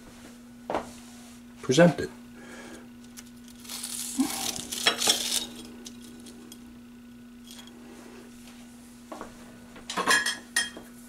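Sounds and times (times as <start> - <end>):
steady low hum: 0.0 - 11.0
knife crunching through fried batter: 3.1 - 6.3.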